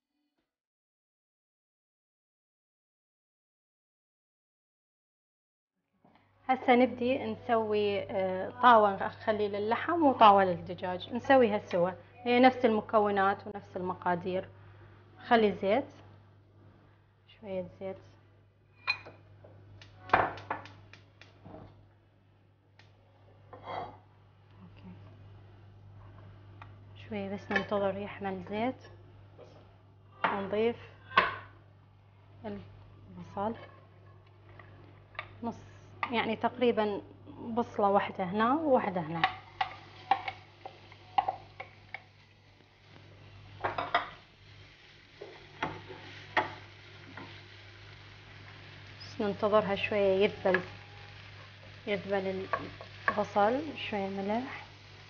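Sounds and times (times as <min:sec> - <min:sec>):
wooden spoon clacking on pan: 0:39.2 - 0:42.1
dishes clattering: 0:43.6 - 0:44.2.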